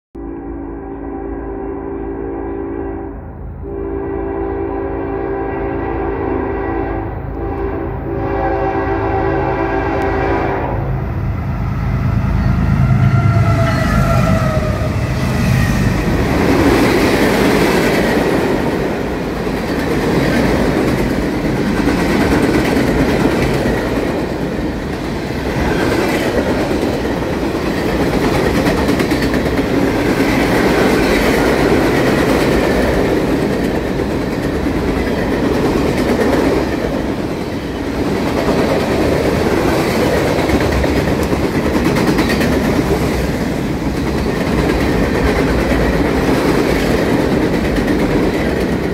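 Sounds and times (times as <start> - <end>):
train wheels rolling on rails: 11.4 - 48.9.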